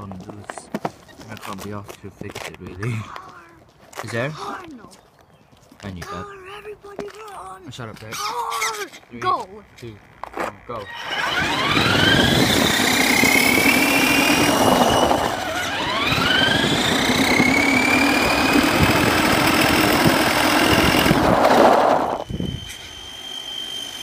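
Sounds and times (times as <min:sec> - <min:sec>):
gear and tyre noise: 0:00.0 - 0:24.0
electric motor whining: 0:10.2 - 0:24.0.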